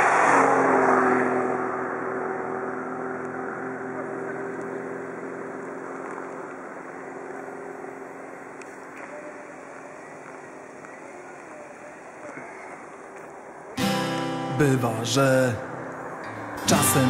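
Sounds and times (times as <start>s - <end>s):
motor engine droning: 0.0s - 17.0s.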